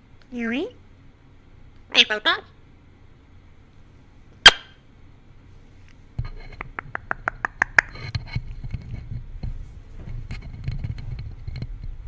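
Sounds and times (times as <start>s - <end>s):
parrot beak clicking on microphone: 6.6s - 8.0s.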